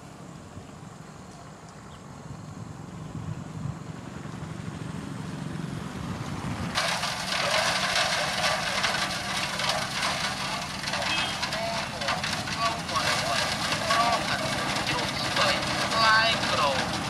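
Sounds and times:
diesel engine rumbling: 2.0 - 17.0
gravel pouring and rattling: 6.7 - 17.0.

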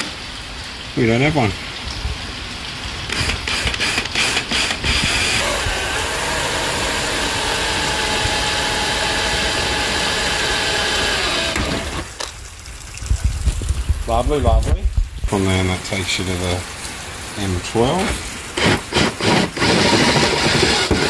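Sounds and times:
drill boring through sheet metal: 3.1 - 12.1, 18.6 - 21.0
drill clicks: 3.1 - 12.2, 18.6 - 21.0.

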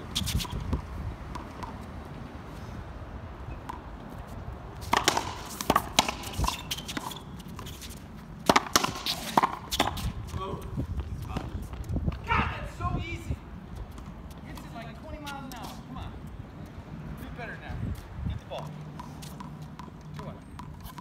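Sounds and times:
racquets striking ball: 0.4 - 1.9, 3.5 - 4.0, 4.8 - 10.5, 18.5 - 21.0
ball hitting concrete wall: 4.9 - 7.1, 8.4 - 10.1.

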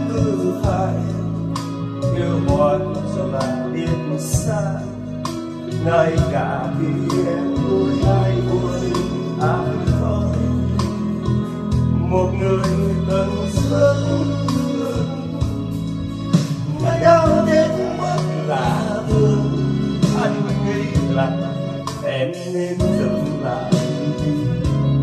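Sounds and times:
pop ballad with guitar: 0.0 - 25.0.

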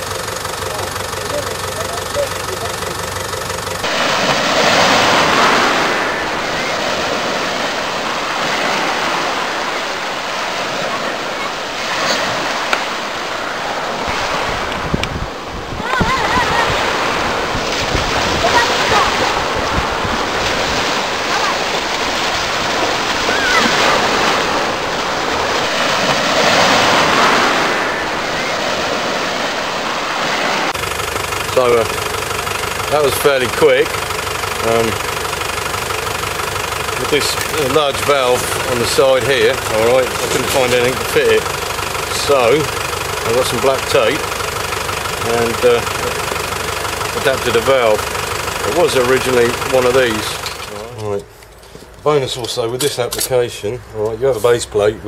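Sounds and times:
sea surf rushing: 0.0 - 51.3.

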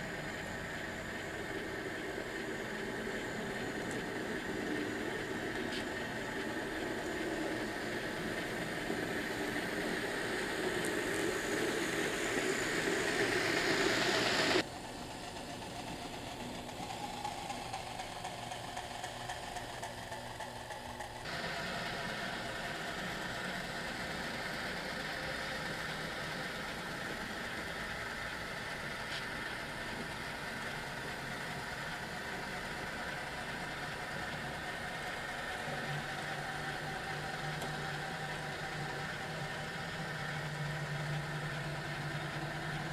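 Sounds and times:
model train running: 0.0 - 42.9.

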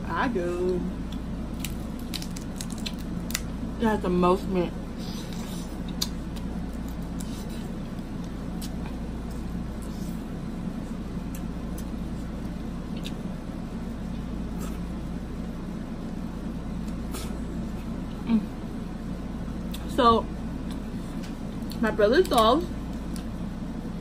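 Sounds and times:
steady low background hum: 0.0 - 24.0
chewing clicks and smacks: 5.8 - 7.3, 11.3 - 13.2.

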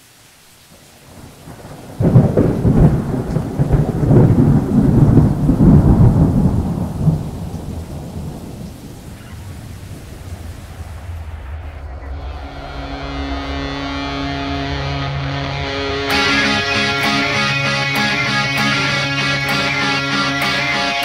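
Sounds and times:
rain hiss: 0.0 - 11.9
thunderclap rumbling: 1.0 - 13.6.

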